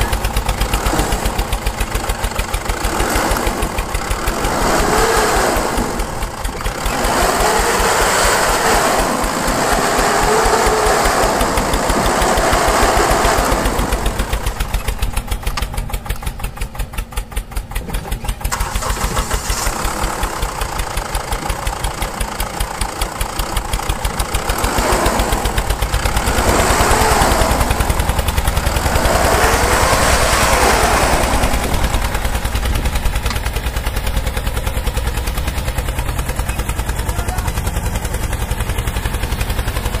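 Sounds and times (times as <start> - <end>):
toy tractor engine chugging: 0.0 - 40.0
gritty noise: 17.8 - 35.6.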